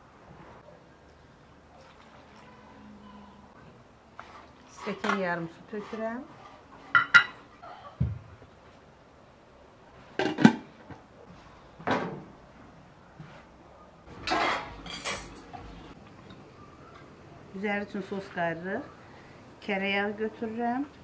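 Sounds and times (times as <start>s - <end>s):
metal cookware clanking: 14.1s - 15.6s.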